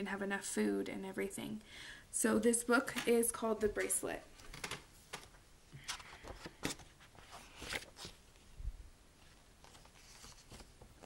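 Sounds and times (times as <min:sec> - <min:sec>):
book pages rustling: 0:04.4 - 0:11.0.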